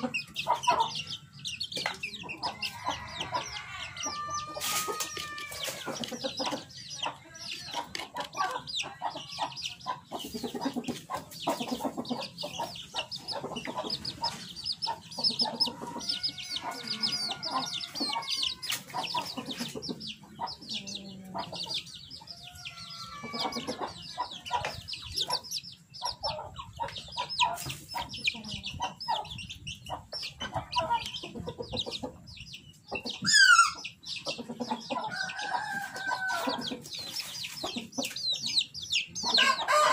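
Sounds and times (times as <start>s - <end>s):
chickens clucking: 0.0s - 39.9s
chicks peeping: 0.0s - 39.9s
rooster crowing: 2.5s - 5.8s, 15.8s - 18.8s, 22.4s - 23.9s, 33.2s - 33.8s, 35.1s - 36.7s, 39.4s - 39.9s
loud squawk: 33.2s - 33.8s.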